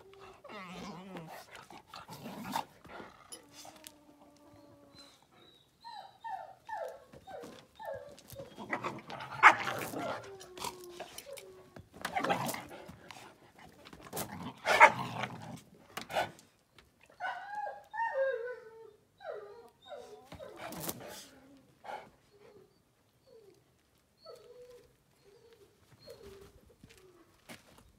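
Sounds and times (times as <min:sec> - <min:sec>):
dogs whining: 0:00.0 - 0:13.0, 0:17.0 - 0:27.4
rough dog barks: 0:08.8 - 0:10.2, 0:14.6 - 0:15.2.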